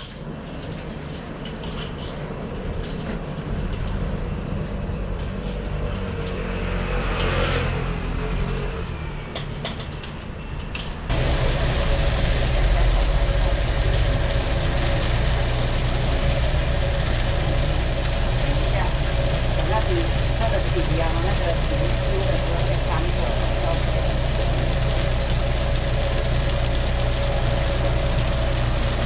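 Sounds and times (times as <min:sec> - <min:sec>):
low machine drone: 0:00.0 - 0:29.0
low engine-like rumble: 0:00.3 - 0:29.0
hiss of griddle cooking: 0:11.1 - 0:29.0.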